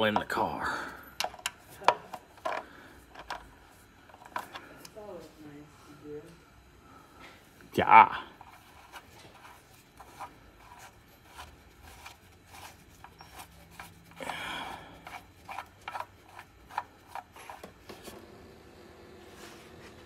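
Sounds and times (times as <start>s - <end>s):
hand tools scraping metal: 8.4s - 17.7s.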